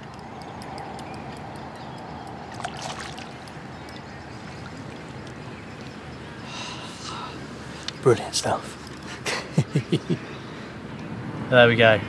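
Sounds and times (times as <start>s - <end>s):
water sloshing around a net: 2.5s - 3.5s
small water splashes: 2.5s - 5.4s.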